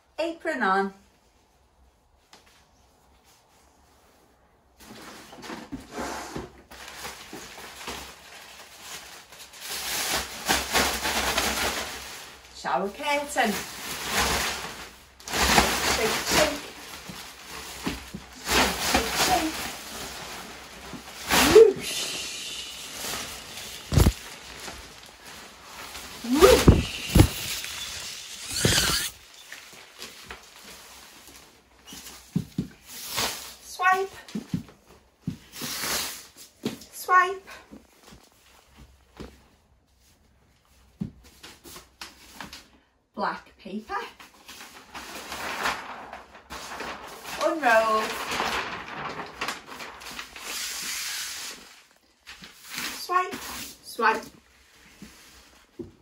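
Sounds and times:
plastic shower curtain rustling: 1.2s - 42.9s, 43.9s - 56.0s
plastic crinkling: 6.7s - 33.6s, 44.2s - 56.0s.

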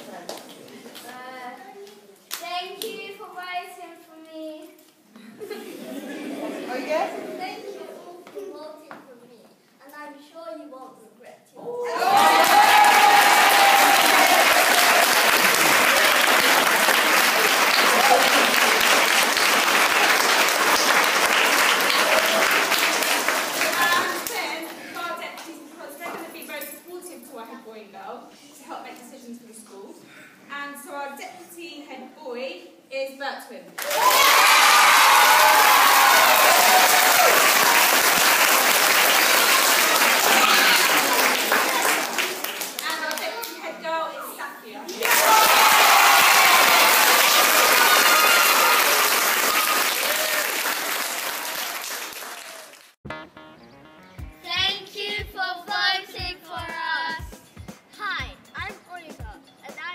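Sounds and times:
high held cheer: 11.7s - 24.1s, 33.8s - 42.6s, 45.0s - 52.9s
crowd applauding: 12.0s - 24.4s, 33.8s - 43.5s, 45.0s - 53.0s.

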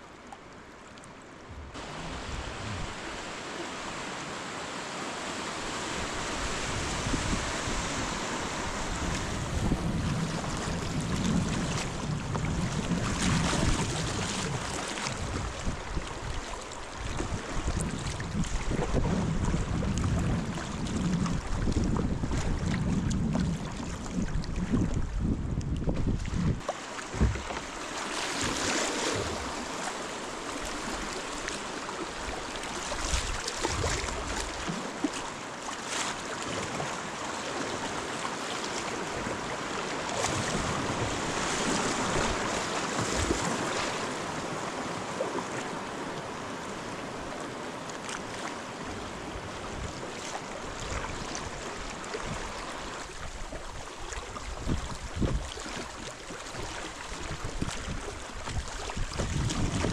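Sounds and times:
river water rushing: 0.0s - 12.1s, 12.9s - 19.5s, 26.6s - 59.9s
low thumps: 25.9s - 27.6s.

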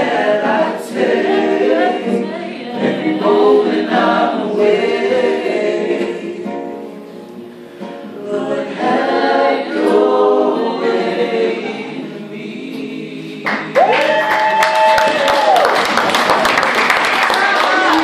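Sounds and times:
women singing in unison: 0.0s - 6.5s, 8.2s - 13.9s
acoustic guitar: 0.0s - 15.2s
loud shout: 13.8s - 15.9s, 17.2s - 18.0s.

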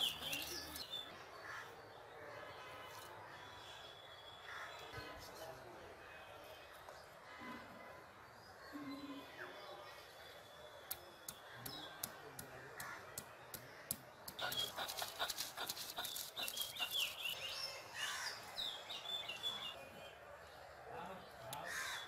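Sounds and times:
bird chirps: 0.0s - 1.1s, 14.3s - 20.2s.

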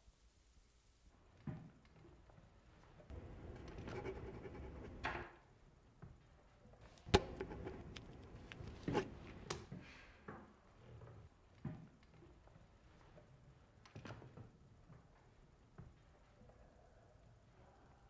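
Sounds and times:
pens clicking and knocking on desks: 3.1s - 5.3s, 6.9s - 9.7s.

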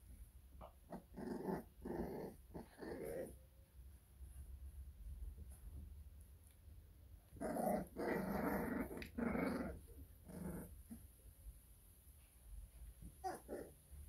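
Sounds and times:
puppies growling: 0.6s - 3.4s, 7.4s - 11.1s, 13.2s - 13.8s.

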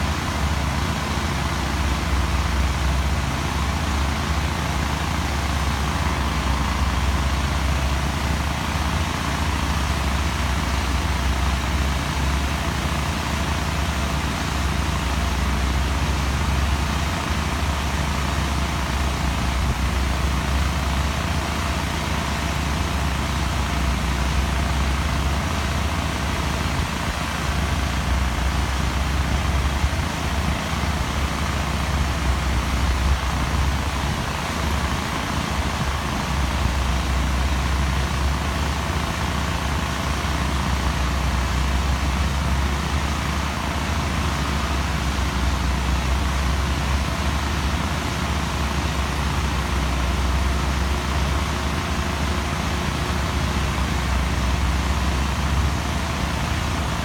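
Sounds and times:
construction machinery rumbling: 0.0s - 57.0s.

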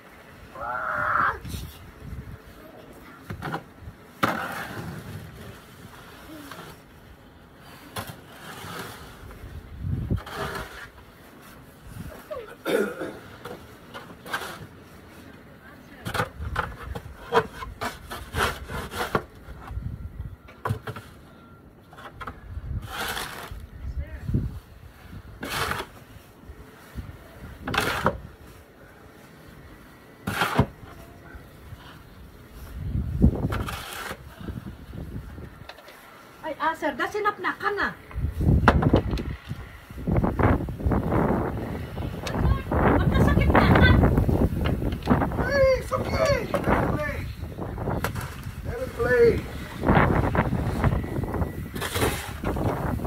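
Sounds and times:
snow shovel scraping: 7.6s - 12.6s, 13.4s - 14.8s, 17.3s - 19.2s, 22.8s - 23.6s, 25.4s - 26.4s, 30.3s - 31.0s, 33.4s - 34.7s, 45.9s - 53.0s.

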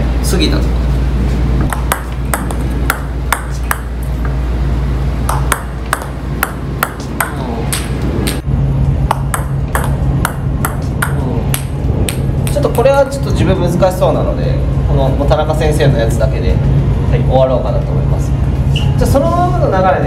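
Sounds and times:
steady low hum: 0.0s - 20.0s
table tennis ball clicking: 1.7s - 4.1s, 5.3s - 8.4s, 9.1s - 12.8s.

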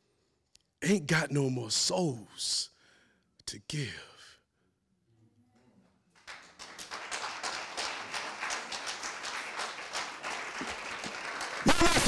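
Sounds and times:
audience applause: 6.2s - 12.0s.

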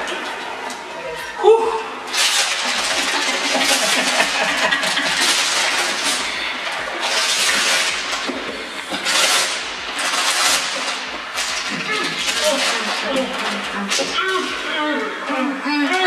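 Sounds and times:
wrapping paper tearing and crumpling: 2.1s - 14.6s.

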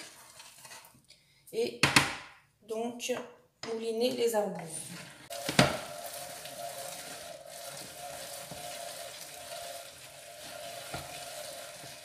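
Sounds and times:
food mill scraping wet pulp: 0.0s - 1.0s, 4.6s - 12.0s.

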